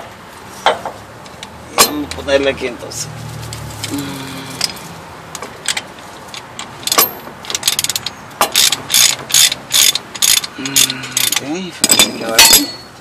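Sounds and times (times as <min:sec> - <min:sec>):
hand ratchet clicking: 0:05.4 - 0:12.7.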